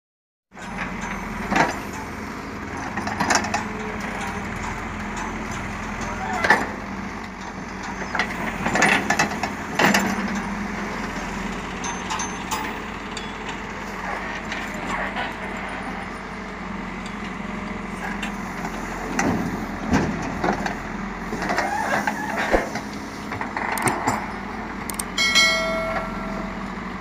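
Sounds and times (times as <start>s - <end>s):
diesel engine running: 0.5s - 27.0s
metallic knocks and clanks: 11.8s - 13.6s, 25.1s - 26.6s.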